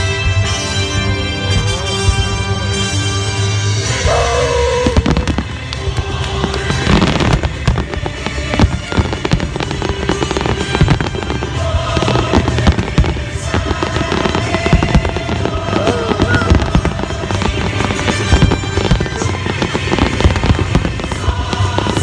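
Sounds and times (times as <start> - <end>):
music playing: 0.0 - 22.0
fireworks bursting and crackling: 3.6 - 22.0.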